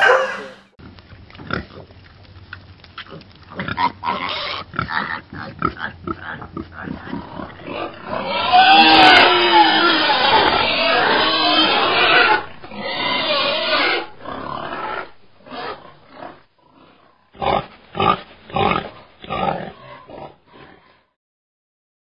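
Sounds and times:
piglets squealing: 0.0 - 0.6, 7.7 - 15.9.

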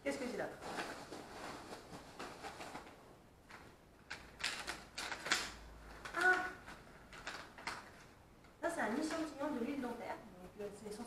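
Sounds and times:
paper packaging rustling: 0.4 - 8.2.

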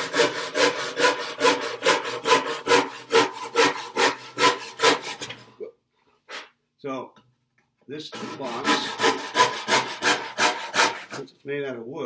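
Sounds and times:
handsaw rasping through wood: 0.0 - 5.4, 8.1 - 11.3.

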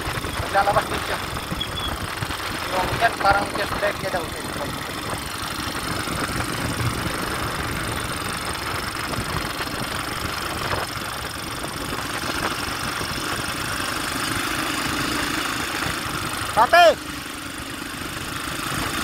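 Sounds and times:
wind rush over microphone: 0.0 - 13.8
motorcycle engine and tyre noise: 0.0 - 19.0.

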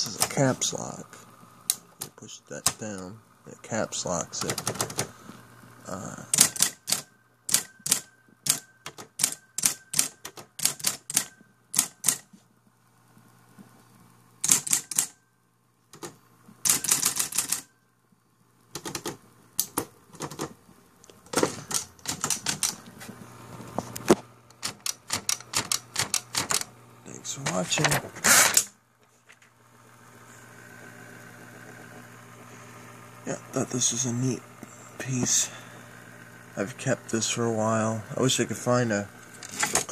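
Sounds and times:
typewriter motor humming: 0.0 - 12.4, 14.4 - 15.2, 15.9 - 17.7, 18.7 - 28.8, 29.4 - 39.9
typewriter keys clacking: 4.4 - 5.1, 6.3 - 12.2, 14.4 - 15.1, 16.7 - 17.7, 21.4 - 22.8, 24.5 - 26.7.

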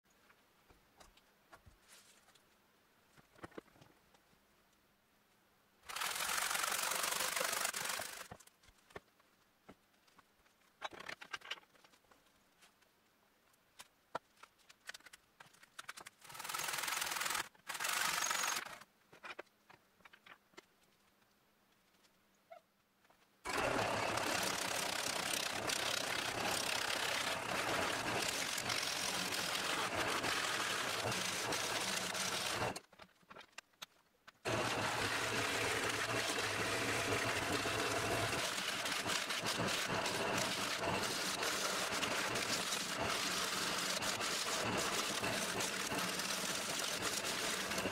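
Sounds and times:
short bursts of noise: 5.8 - 8.5, 15.7 - 18.9
gouge cutting wood on lathe: 23.5 - 32.8, 34.5 - 47.9
lathe humming: 23.5 - 32.8, 34.5 - 47.9.

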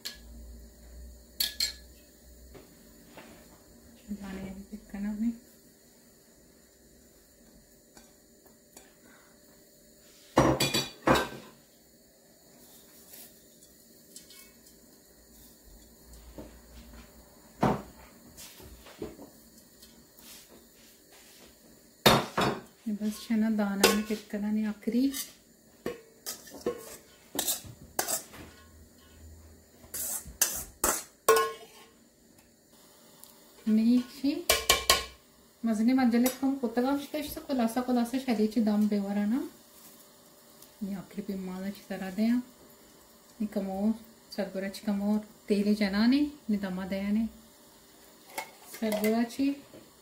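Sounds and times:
metal spoon clinking on pots: 1.4 - 1.9, 22.4 - 24.2, 30.0 - 31.9, 34.0 - 35.2, 48.3 - 49.2
steel kitchenware clattering: 30.4 - 31.9.

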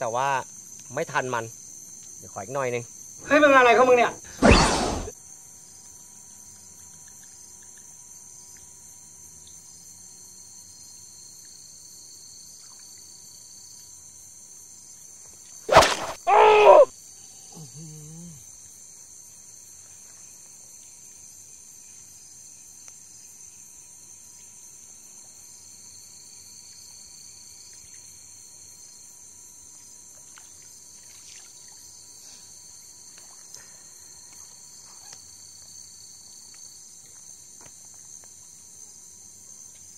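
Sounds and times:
crickets and insects chirring: 0.0 - 39.9
loud pitched shout: 15.7 - 16.9.

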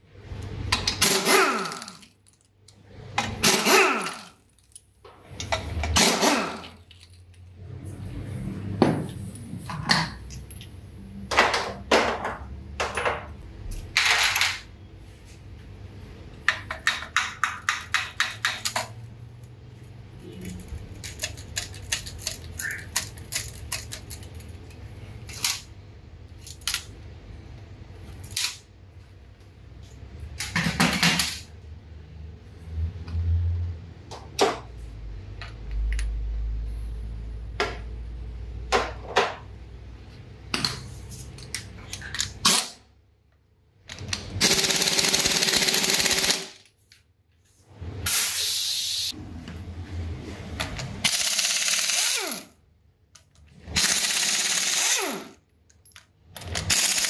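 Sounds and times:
pneumatic impact wrench: 0.9 - 2.0, 3.3 - 4.2, 5.9 - 6.7, 44.4 - 46.6, 48.0 - 49.1, 51.0 - 52.6, 53.7 - 55.4, 56.5 - 57.0.

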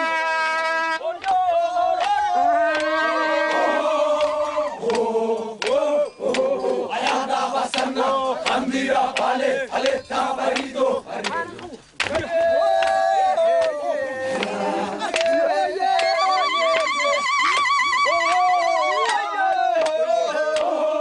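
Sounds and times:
group chanting and singing: 0.6 - 21.0.

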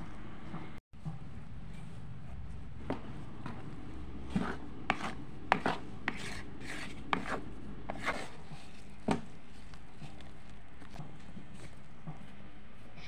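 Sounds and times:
spatula scraping plastic bowl: 4.2 - 9.4.

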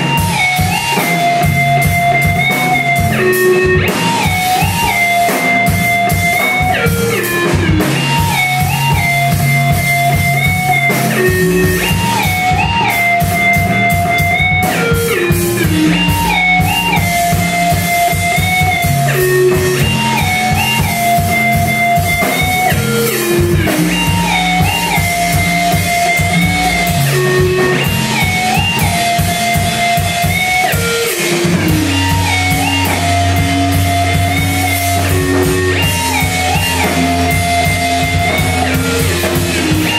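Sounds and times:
drum kit beating: 0.0 - 39.9
guitar riff: 0.0 - 39.9
low bass notes: 0.0 - 39.9.

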